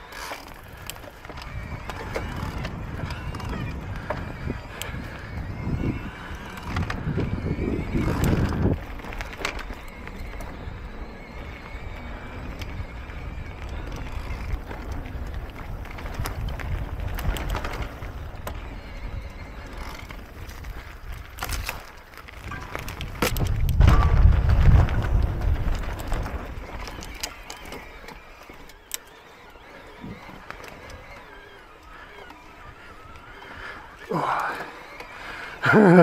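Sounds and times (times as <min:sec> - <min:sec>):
wind rumble on microphone: 0:00.0 - 0:28.7
bike clicks and rattles: 0:00.0 - 0:36.0
bike tyres rolling over dirt: 0:00.0 - 0:36.0.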